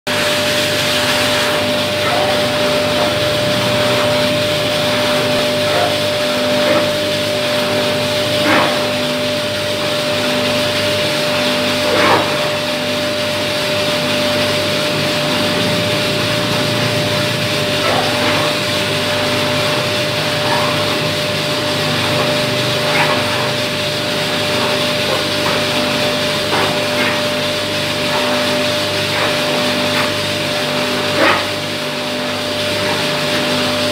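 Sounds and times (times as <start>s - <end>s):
coffee roaster running: 0.1s - 33.9s.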